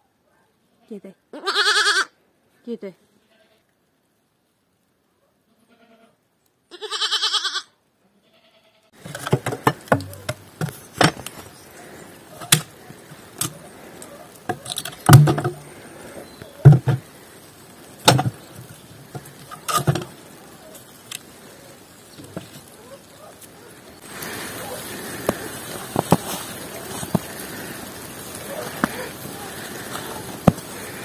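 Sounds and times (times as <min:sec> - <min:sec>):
goat kid bleating: 0:01.3 - 0:02.2, 0:05.5 - 0:09.0
firewood logs knocking and clattering: 0:09.0 - 0:21.4, 0:22.0 - 0:31.0.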